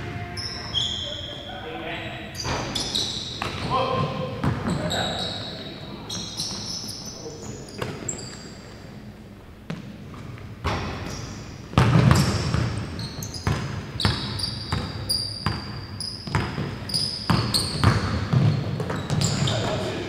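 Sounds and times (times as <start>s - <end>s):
sneakers squeaking on floor: 0.0s - 20.0s
basketball bouncing on wooden floor: 10.6s - 19.5s.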